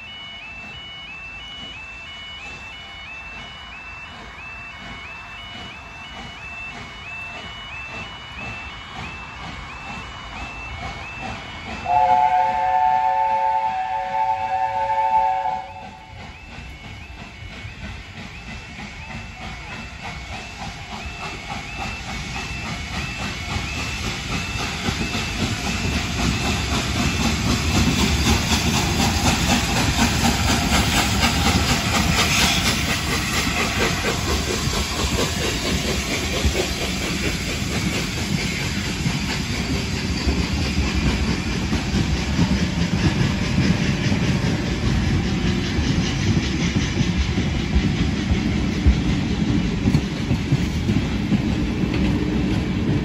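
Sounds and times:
level crossing alarm: 0.0s - 30.7s
steam locomotive hiss: 0.0s - 53.0s
train wheels clickety-clack: 0.0s - 53.0s.

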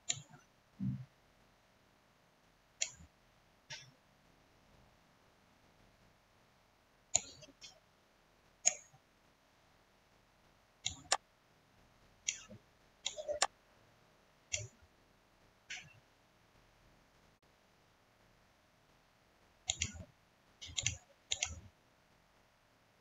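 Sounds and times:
computer mouse clicks: 0.0s - 1.0s, 2.8s - 3.1s, 3.7s - 3.9s, 7.1s - 7.8s, 8.6s - 9.0s, 10.8s - 11.2s, 12.3s - 13.5s, 14.5s - 14.8s, 15.7s - 16.0s, 19.7s - 21.7s.

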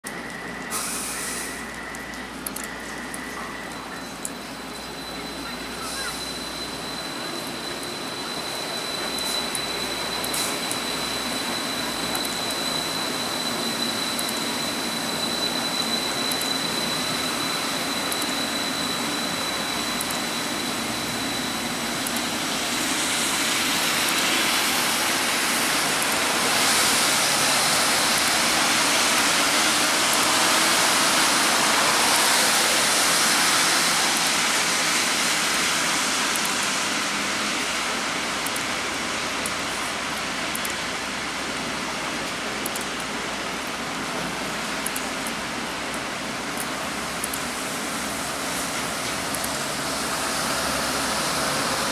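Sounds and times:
train running on guideway: 0.0s - 51.9s
thin high whine: 0.1s - 34.5s
heavy rain hiss: 0.7s - 1.7s, 19.0s - 42.6s, 43.3s - 51.9s.

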